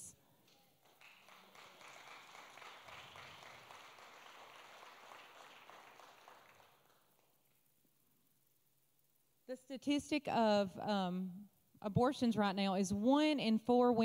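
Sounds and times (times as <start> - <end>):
faint applause: 0.8 - 7.3.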